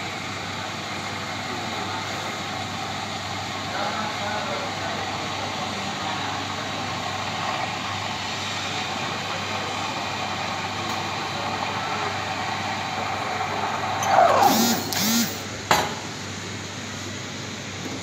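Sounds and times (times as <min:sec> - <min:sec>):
wavering squeal: 0:14.0 - 0:14.9.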